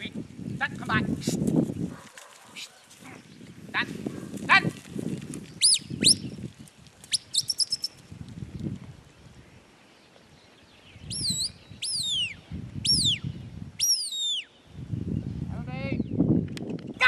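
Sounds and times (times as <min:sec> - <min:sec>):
wind on microphone: 0:00.0 - 0:09.7, 0:10.4 - 0:17.0
high whistled notes: 0:07.1 - 0:07.9, 0:11.1 - 0:13.2, 0:13.8 - 0:14.5.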